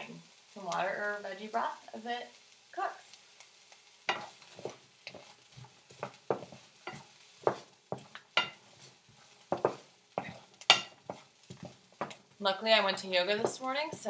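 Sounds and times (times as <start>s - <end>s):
wooden spoon scraping frying pan: 4.1s - 14.0s.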